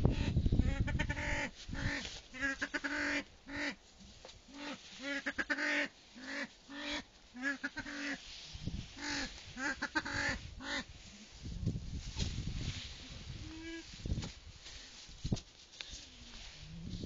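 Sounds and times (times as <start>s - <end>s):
pheasant croaking calls: 9.0s - 10.9s.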